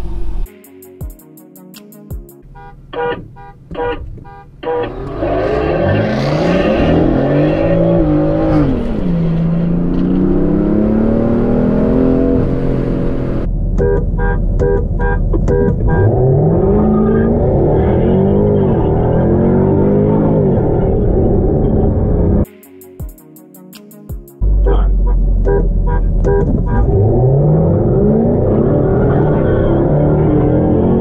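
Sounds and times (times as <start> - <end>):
pulsing electronic music: 0.4 - 4.0, 21.0 - 27.2
car engines at full throttle: 2.5 - 22.5, 24.4 - 31.0.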